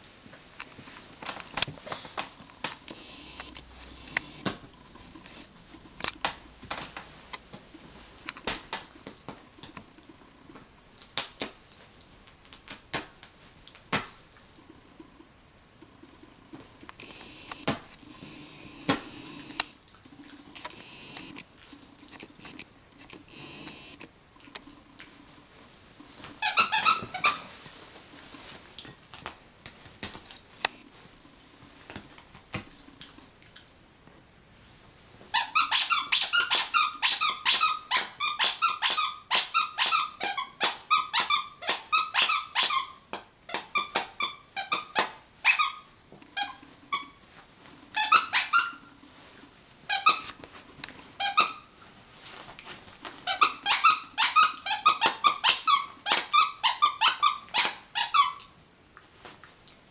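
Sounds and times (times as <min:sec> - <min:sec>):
dog chewing toy: 0:14.2 - 0:27.5, 0:43.5 - 0:51.7, 0:53.2 - 0:58.4
dog toy squeaking: 0:26.4 - 0:27.5, 0:35.4 - 0:47.2, 0:47.9 - 0:48.9, 0:49.9 - 0:50.3, 0:51.2 - 0:51.7, 0:53.2 - 0:58.4.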